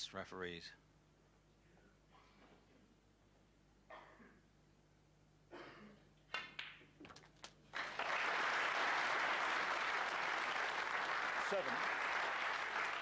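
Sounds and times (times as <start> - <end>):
audience applause: 7.7 - 13.0.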